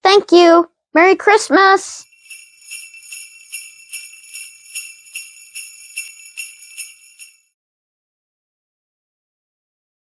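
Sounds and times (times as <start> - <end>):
sleigh bells jingling: 2.0 - 7.6.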